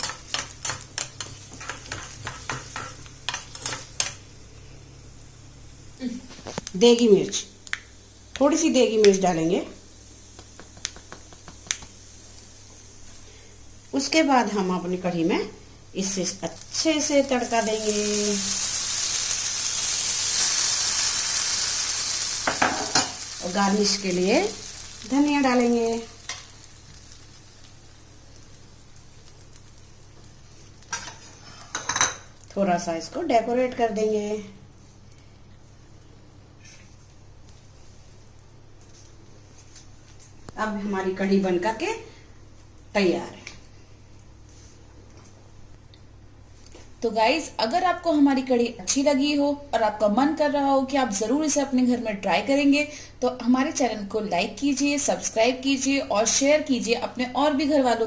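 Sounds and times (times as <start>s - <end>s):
oil sizzling: 0.0s - 34.2s
background hiss: 0.0s - 58.0s.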